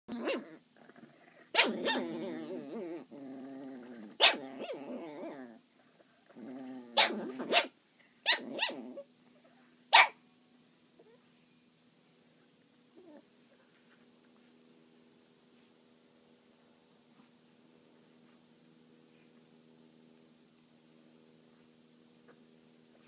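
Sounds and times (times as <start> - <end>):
dogs play-growling: 0.1 - 7.7, 8.4 - 9.1
dog barking sharply: 9.9 - 10.2.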